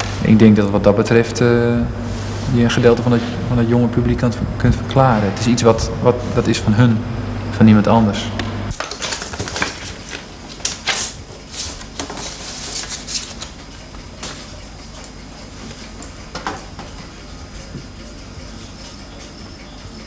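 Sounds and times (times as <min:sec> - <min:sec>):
paper sleeve rustling: 0:08.8 - 0:14.4.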